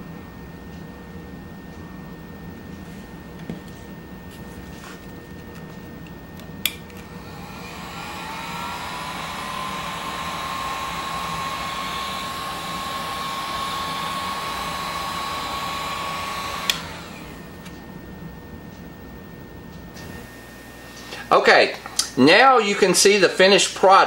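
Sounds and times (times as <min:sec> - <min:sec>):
heat gun blowing: 0:06.6 - 0:17.8
heat gun switch click: 0:16.5 - 0:17.0.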